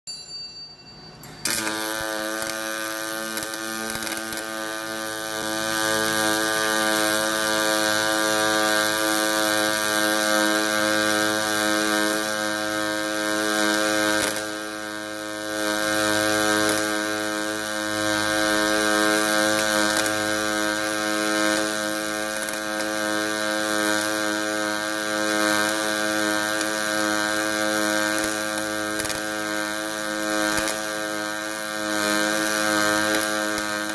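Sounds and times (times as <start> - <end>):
welding machine humming: 0.9 - 33.9.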